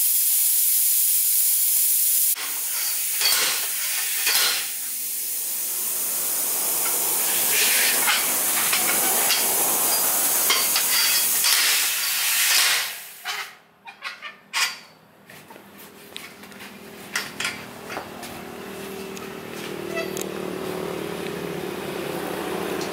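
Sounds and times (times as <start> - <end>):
air hissing out of a tyre: 0.0 - 13.4.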